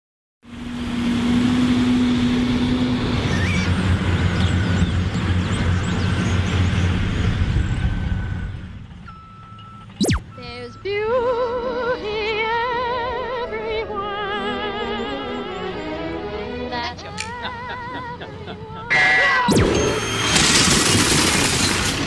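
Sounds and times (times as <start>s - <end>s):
heavy vehicle engine rumble: 0.5s - 22.0s
birds chirping: 3.2s - 8.0s, 14.2s - 18.8s.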